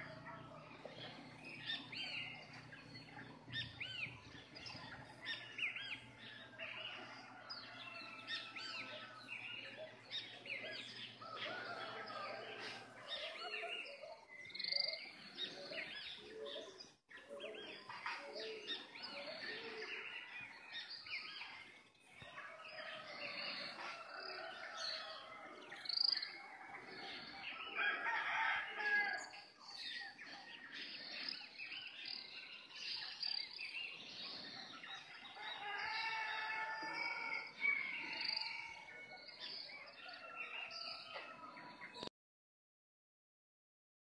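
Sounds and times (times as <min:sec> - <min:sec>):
birds chirping: 0:00.0 - 0:42.1
roosters crowing: 0:06.0 - 0:09.4, 0:11.0 - 0:13.5, 0:22.5 - 0:29.4, 0:35.2 - 0:41.4.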